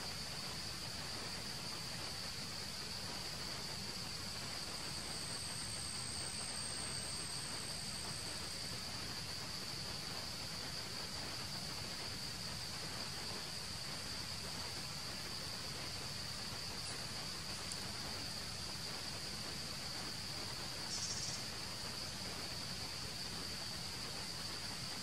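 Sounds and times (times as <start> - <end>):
insects droning: 0.0 - 25.0
outdoor hiss: 0.0 - 25.0
rapid high chirping: 20.9 - 21.4.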